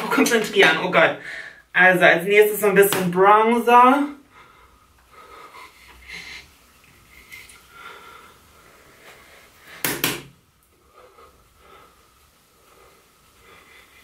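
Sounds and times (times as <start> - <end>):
sharp knocks on table: 9.8 - 10.3.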